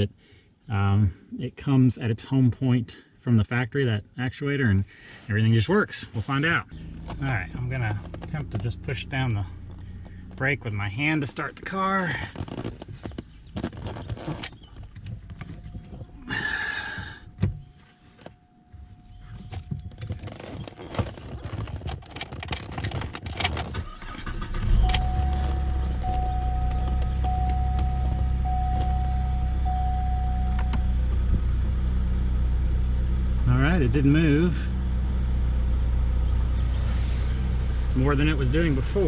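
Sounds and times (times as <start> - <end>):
car engine starting and idling: 4.7 - 39.0
clicks and handling noises: 6.4 - 8.8, 11.4 - 16.2, 19.2 - 23.8, 24.9 - 29.1
pulsing tone: 24.5 - 31.0.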